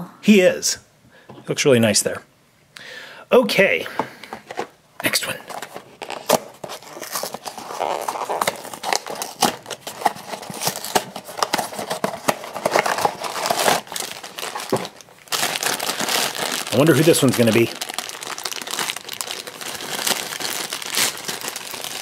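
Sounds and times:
plastic bag crinkling: 5.5s - 22.0s.

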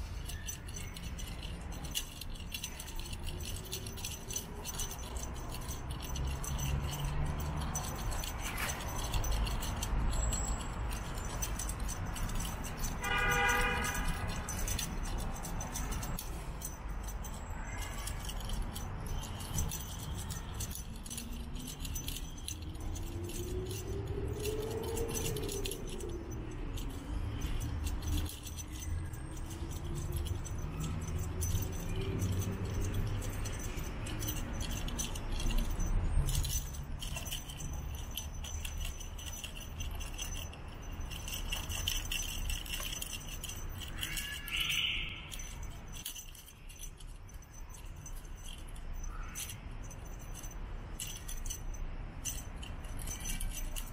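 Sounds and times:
faint engine: 0.0s - 47.1s
toy jingling and rattling: 0.0s - 53.9s.

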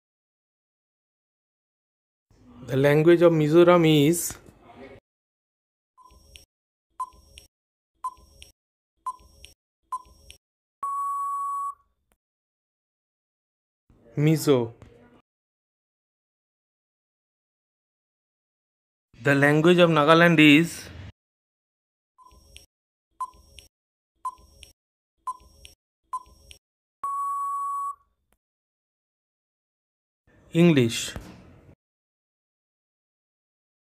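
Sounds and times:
countdown timer tick-beeps: 9.1s - 11.8s, 22.2s - 24.7s, 25.3s - 28.0s
long steady beep: 10.8s - 11.8s, 27.0s - 28.0s
short beeps: 10.8s - 11.8s, 27.0s - 28.0s.

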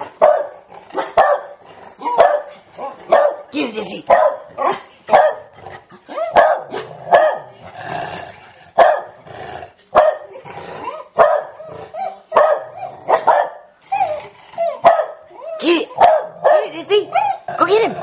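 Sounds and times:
dog barking: 0.2s - 3.5s, 4.1s - 5.5s, 6.2s - 7.6s, 8.8s - 9.2s, 9.9s - 10.3s, 11.2s - 13.7s, 14.8s - 15.2s, 15.9s - 17.0s.

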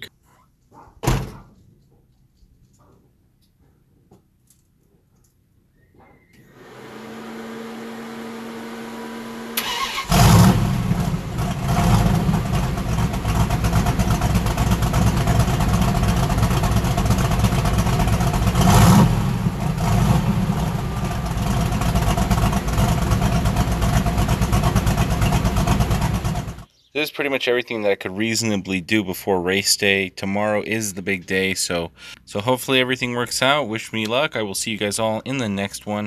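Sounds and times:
car engine starting and revving: 6.4s - 26.7s.

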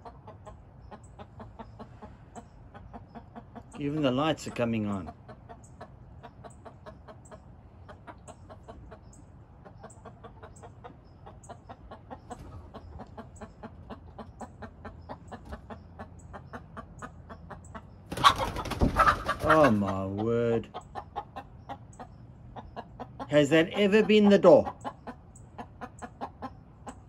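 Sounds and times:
hen clucking: 0.0s - 27.0s.

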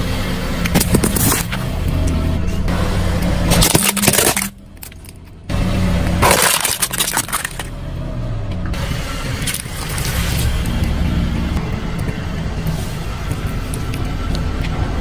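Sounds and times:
car low rumble: 0.0s - 15.0s
plastic toy cracking and crunching: 3.5s - 5.2s, 6.2s - 7.7s.

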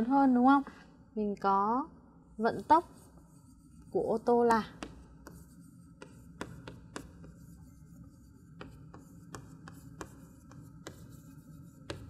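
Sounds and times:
chalk tapping and scraping: 2.4s - 12.0s.

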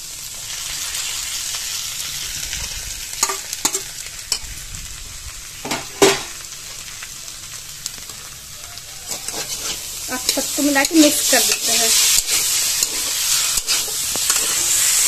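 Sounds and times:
food sizzling in a pan: 0.0s - 15.0s
spatula scraping and clinking on pan: 3.2s - 4.4s, 9.0s - 15.0s.

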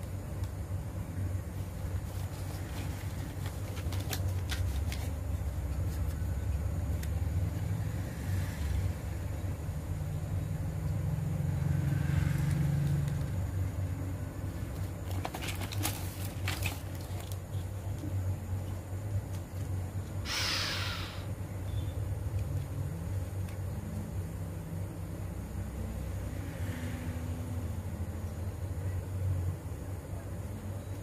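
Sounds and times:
plastic bag crinkling: 15.0s - 17.4s.

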